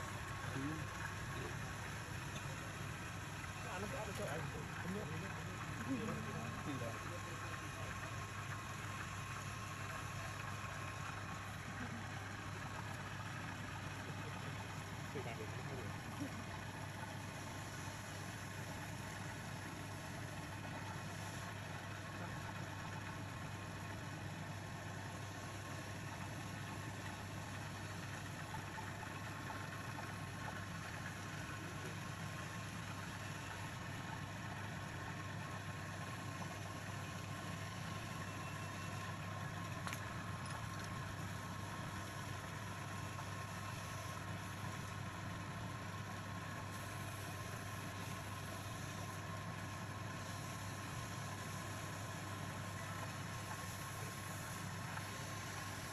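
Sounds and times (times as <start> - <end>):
sanding spinning wood: 45.8 - 55.9.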